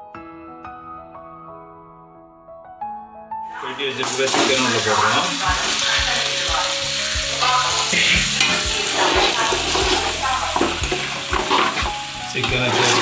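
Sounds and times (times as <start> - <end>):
sauce sizzling in a pot: 3.5 - 13.0.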